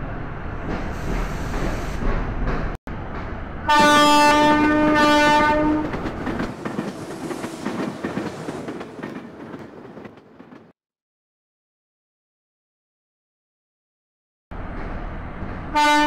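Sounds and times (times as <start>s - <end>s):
rail coaches rumbling and clattering: 0.0s - 10.7s, 14.6s - 16.0s
train horn blast: 3.6s - 5.9s, 15.7s - 16.0s.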